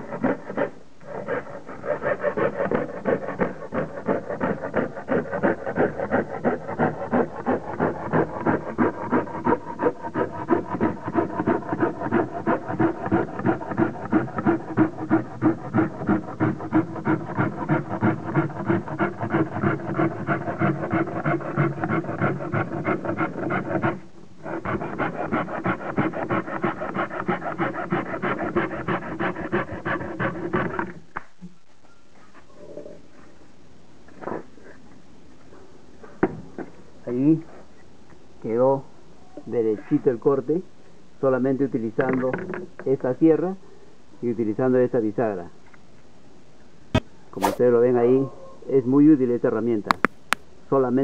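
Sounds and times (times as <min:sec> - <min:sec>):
hacksaw sawing board: 0:00.0 - 0:31.0, 0:47.4 - 0:47.6.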